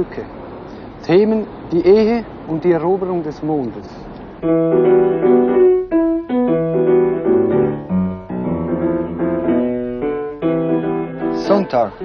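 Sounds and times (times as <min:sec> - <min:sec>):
keyboard chords background music: 0:04.4 - 0:12.0.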